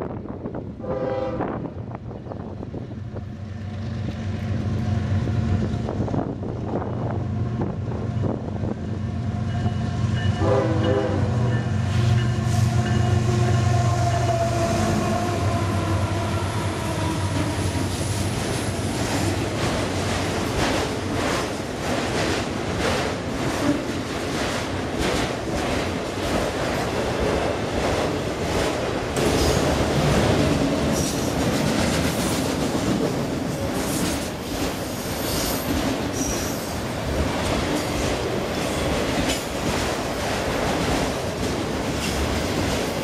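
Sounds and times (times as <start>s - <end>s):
diesel locomotive engine drone: 0.0s - 24.1s
locomotive horn: 0.8s - 1.7s, 10.3s - 17.9s.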